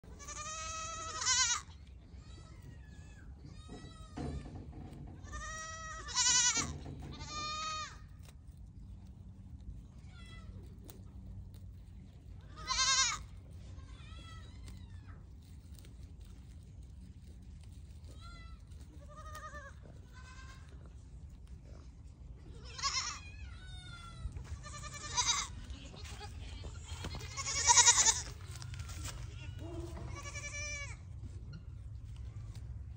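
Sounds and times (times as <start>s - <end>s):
goats bleating: 0.1s - 4.1s, 5.2s - 8.2s, 12.4s - 14.8s, 18.0s - 20.9s, 22.5s - 31.2s.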